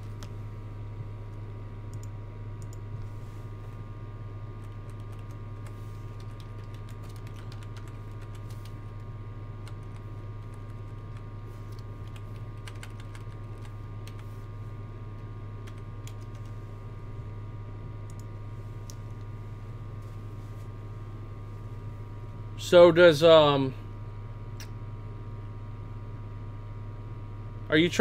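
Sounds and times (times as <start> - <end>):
low electrical hum: 0.0 - 28.0
keyboard keystrokes: 9.6 - 14.2.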